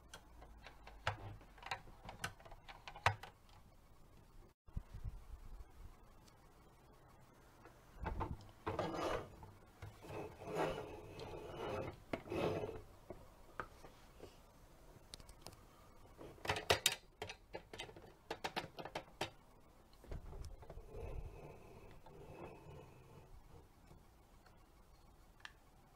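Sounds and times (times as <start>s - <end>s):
plastic toy scraping: 8.6s - 12.9s
plastic toy clicks and rattles: 16.4s - 19.4s.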